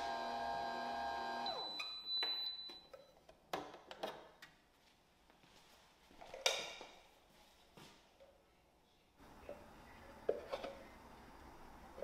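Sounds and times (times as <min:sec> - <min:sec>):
kneading motor winding down: 0:00.0 - 0:01.6.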